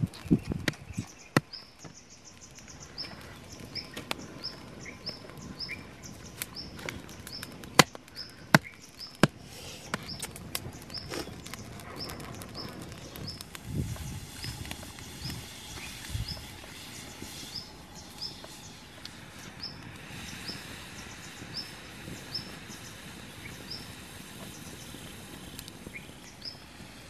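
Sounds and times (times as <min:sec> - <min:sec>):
dry sticks cracking: 0:00.0 - 0:17.0
bird chirping: 0:00.1 - 0:25.0.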